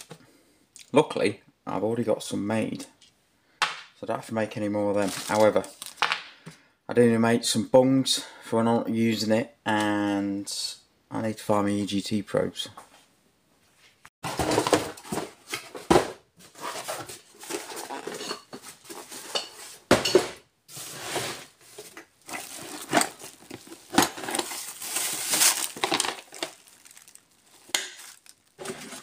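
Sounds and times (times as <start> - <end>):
hard objects clinking and clattering: 16.6 - 29.0.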